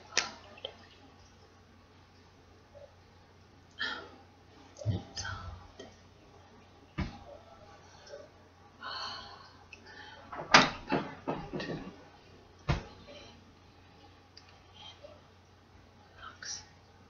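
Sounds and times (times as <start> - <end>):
sharp knocks and thumps: 7.0 - 7.3, 10.3 - 12.0, 12.7 - 13.0.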